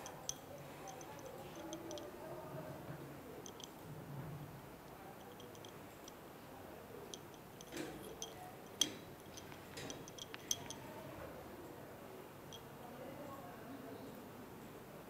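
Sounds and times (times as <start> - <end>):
light clicks and ticks: 0.0 - 2.2, 3.4 - 3.8, 4.8 - 6.2, 7.1 - 11.0.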